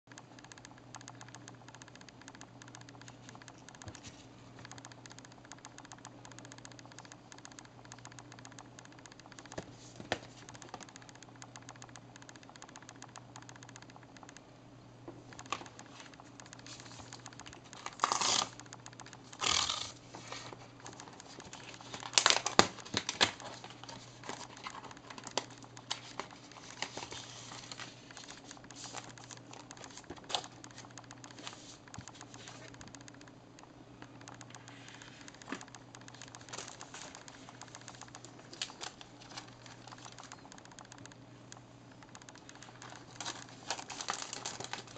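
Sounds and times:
steady low hum: 0.1 - 44.9
plastic film crinkling: 21.5 - 29.1, 42.8 - 44.9
package tapping and rustling: 43.2 - 44.9.

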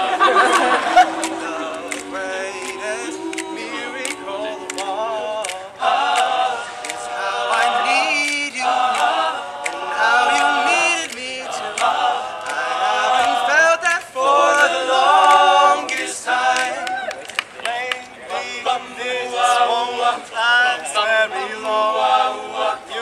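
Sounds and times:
male group singing in harmony: 0.0 - 23.0
sharp percussive clicks: 1.2 - 7.0, 7.6 - 12.6.

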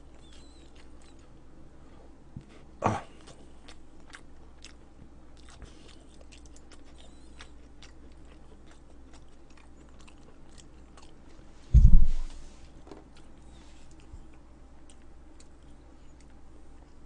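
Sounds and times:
person chewing food: 0.0 - 1.4, 2.4 - 17.0
loud low dull thump: 11.7 - 12.4.

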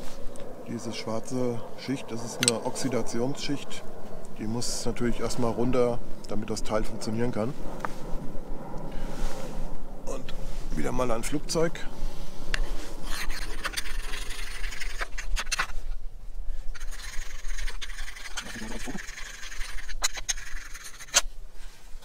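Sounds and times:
knife scraping ferrocerium rod: 2.4 - 2.6, 16.8 - 21.3.

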